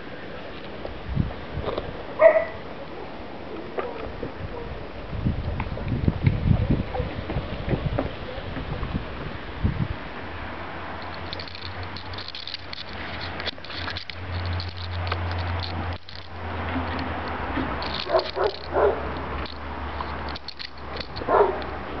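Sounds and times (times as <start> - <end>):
puppy yelps: 2.2 - 2.6
puppy gnawing on stick: 11.0 - 22.0.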